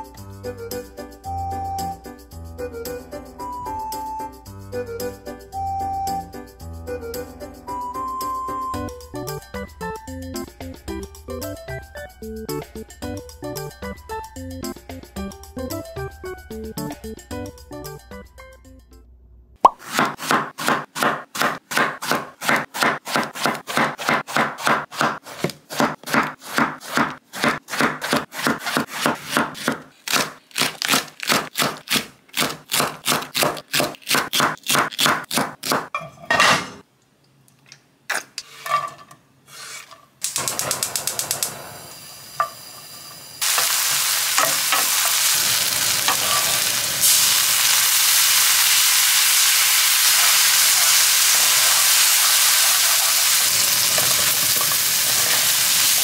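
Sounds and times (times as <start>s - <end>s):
fast sharp kitchen strokes: 19.6s - 35.9s, 43.3s - 56.0s
food sizzling in a pan: 40.6s - 56.0s.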